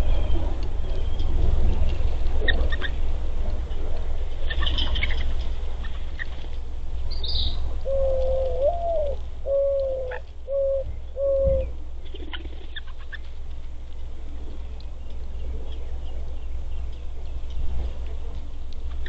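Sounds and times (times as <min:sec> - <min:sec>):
steady low rumble: 0:00.0 - 0:19.0
dove cooing: 0:07.8 - 0:13.1
faint clicks: 0:16.8 - 0:19.0.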